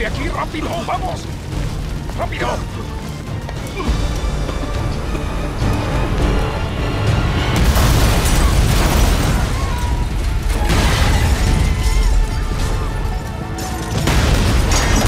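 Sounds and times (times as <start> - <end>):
dramatic score music: 0.0 - 15.0
explosion blasts with rumble: 7.2 - 13.2, 13.9 - 15.0.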